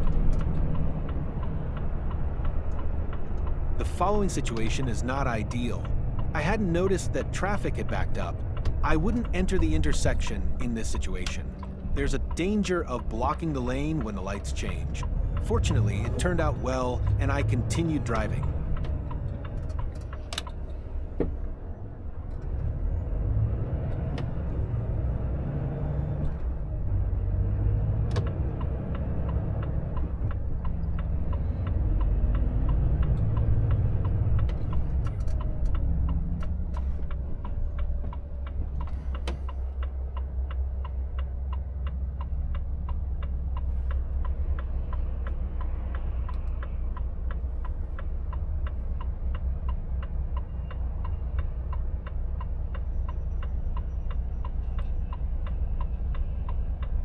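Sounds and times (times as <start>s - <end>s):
truck diesel engine running: 0.0s - 57.0s
indicator relay ticking: 28.1s - 57.0s.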